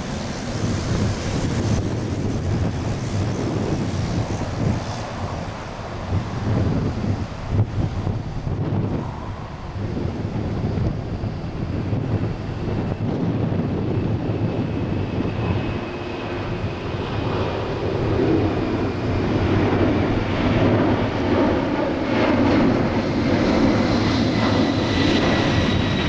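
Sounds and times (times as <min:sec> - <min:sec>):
jet roar: 0:00.0 - 0:26.0.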